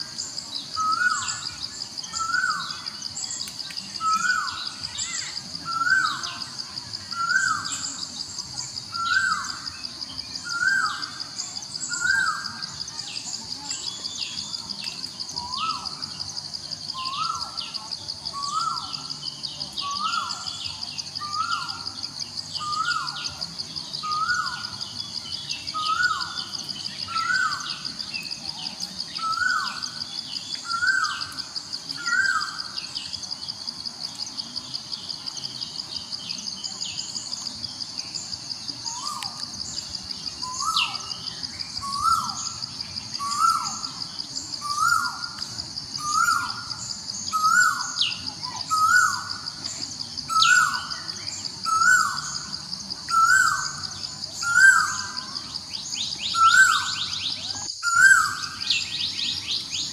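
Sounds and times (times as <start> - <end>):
high-pitched insect trill: 0.0 - 59.9.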